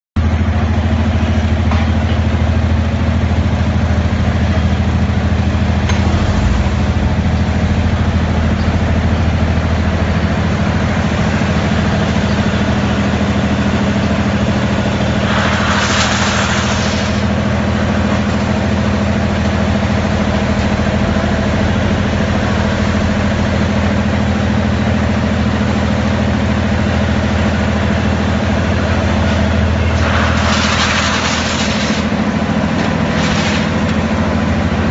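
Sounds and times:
loud drone of mill machinery: 0.2 - 34.9
hissing rush: 15.0 - 17.4, 29.8 - 34.2.

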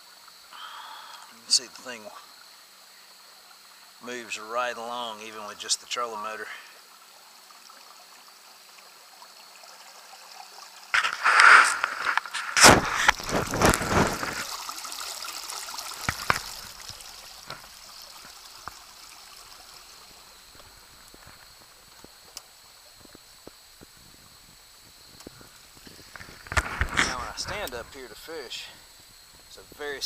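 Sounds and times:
loud rush of water: 10.9 - 20.9
water trickling past boat hull: 12.7 - 24.0.

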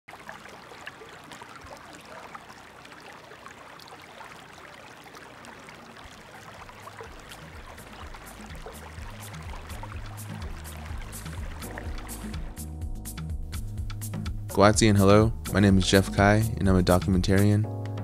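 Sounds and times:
creek babbling over stones: 0.1 - 12.6
low music notes: 7.1 - 18.0.

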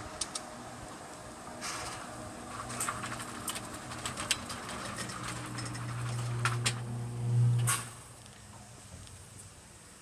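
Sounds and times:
shutter motor hum: 2.5 - 8.1.

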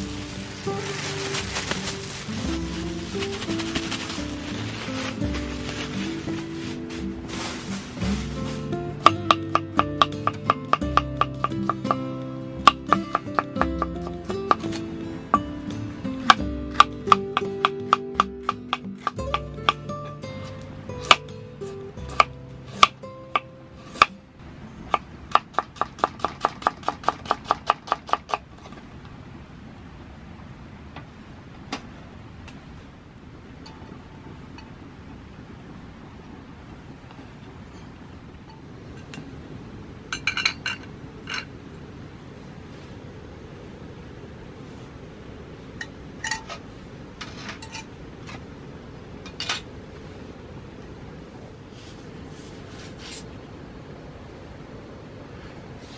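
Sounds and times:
steady low rumble: 0.0 - 17.4
metal cookware clinking: 40.1 - 41.5.

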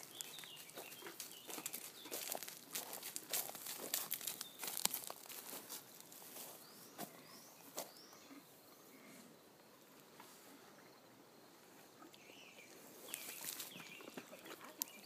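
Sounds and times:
horse hooves crunching on wood chips: 0.0 - 8.0, 13.0 - 15.0.

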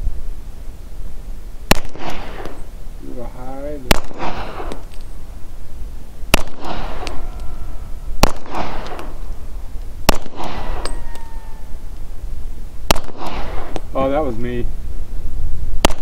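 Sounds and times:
pistol shots with echo: 1.7 - 2.6, 3.8 - 4.8, 6.3 - 7.2, 8.2 - 9.2, 10.0 - 11.0, 12.9 - 13.9.

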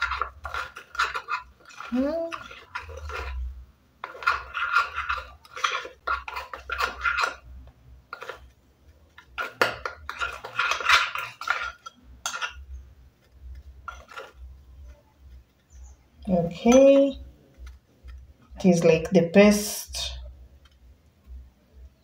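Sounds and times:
metal spoon scraping glass bowl: 0.0 - 8.5, 9.2 - 12.8, 13.8 - 15.0.

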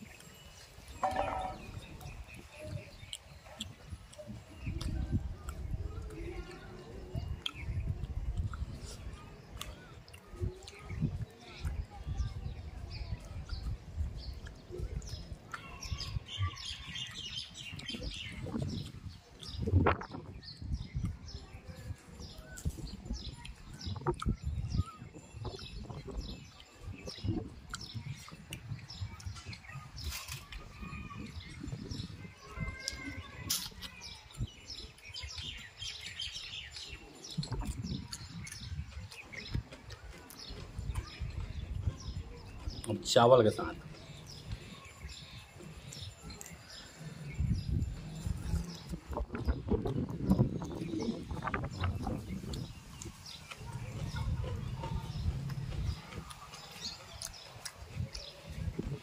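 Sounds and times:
small birds chirping: 0.0 - 59.0
person chewing food: 56.2 - 58.6.

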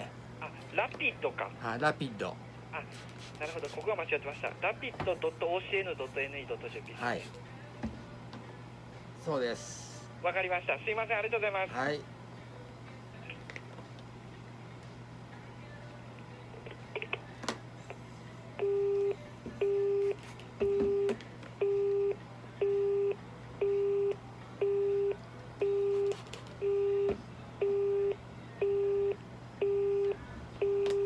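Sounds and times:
telephone busy tone: 18.6 - 31.0.

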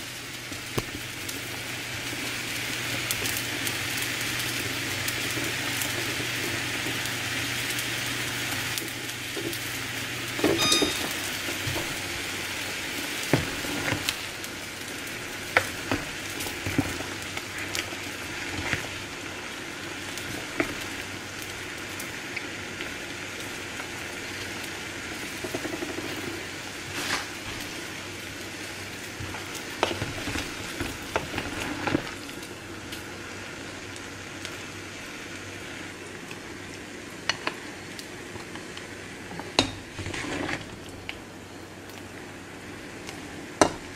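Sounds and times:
soup boiling: 0.0 - 43.9
spoon knocking against pot: 10.4 - 11.2.

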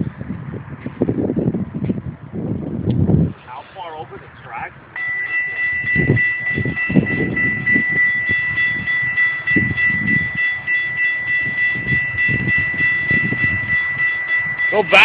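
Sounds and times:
steady high-pitched tone: 5.0 - 15.0
train wheels rumbling: 5.0 - 15.0.

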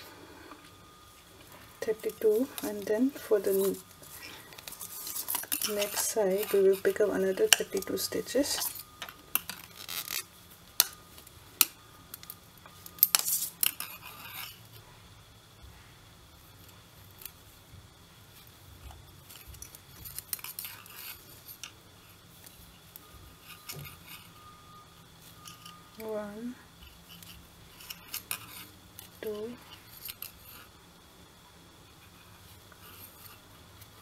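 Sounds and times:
yarn rustle: 0.9 - 11.3.

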